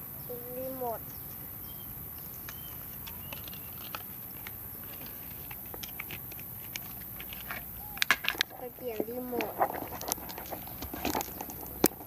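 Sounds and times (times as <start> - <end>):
batteries pack clicking and crinkling: 2.5 - 12.0.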